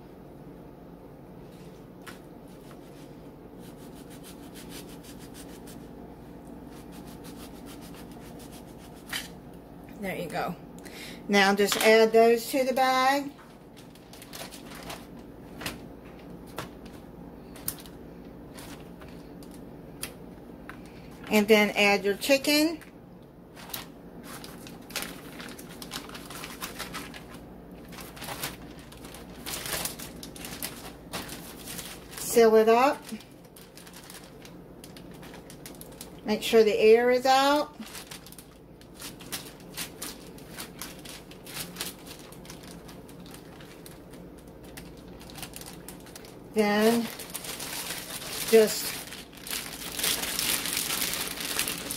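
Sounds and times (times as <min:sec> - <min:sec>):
plastic bag rustling: 0:06.6 - 0:09.4, 0:11.6 - 0:19.6, 0:23.5 - 0:36.5, 0:37.1 - 0:51.9.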